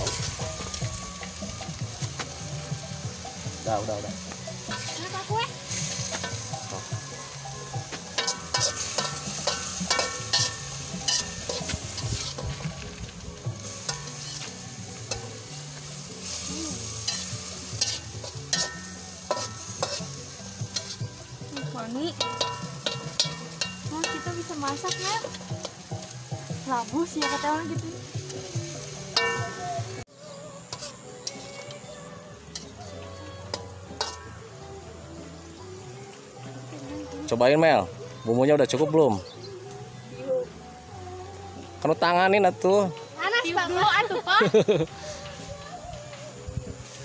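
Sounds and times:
frying sizzle: 0.0s - 34.8s
spatula scraping a wok: 4.2s - 29.9s, 30.6s - 31.9s, 32.5s - 34.4s.

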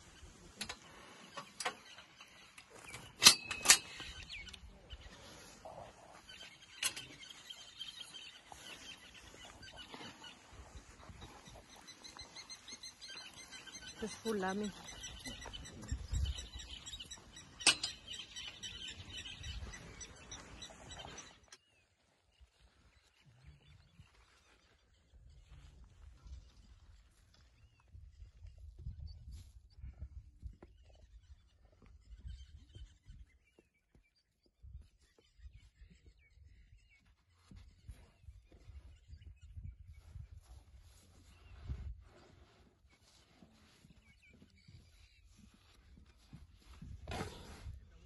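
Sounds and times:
birds chirping and twittering: 0.0s - 48.0s
trunk scratching in sand: 40.9s - 48.0s.

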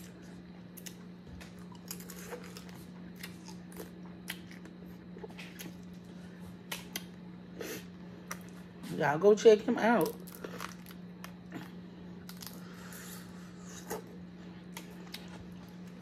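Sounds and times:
steady low hum: 0.0s - 16.0s
wet eating clicks and smacks: 0.7s - 5.9s, 6.6s - 7.2s.

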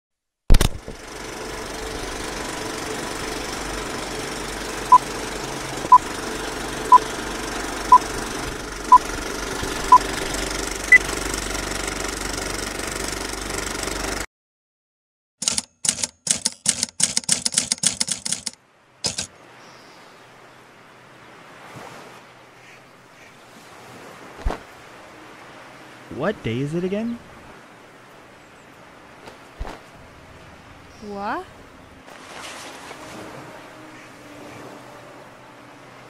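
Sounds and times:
film projector clatter and hum: 0.5s - 14.3s, 15.4s - 19.3s
sharp rapid clicks: 15.4s - 19.3s.

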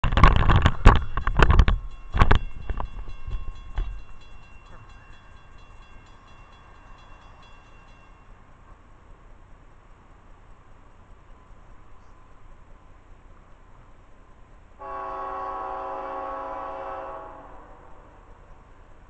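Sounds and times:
faint ringing tones with ticks: 0.1s - 14.8s.

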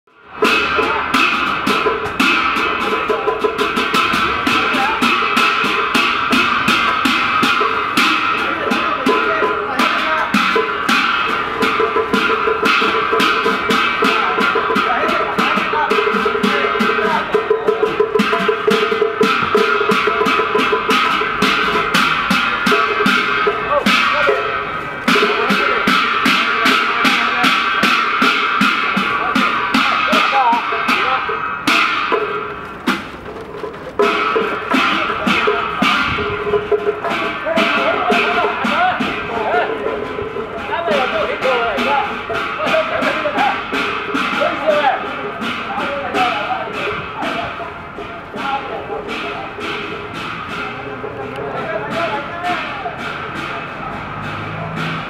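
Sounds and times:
cymbals: 0.1s - 55.0s
drums: 0.1s - 55.0s
gongs: 0.3s - 55.0s.

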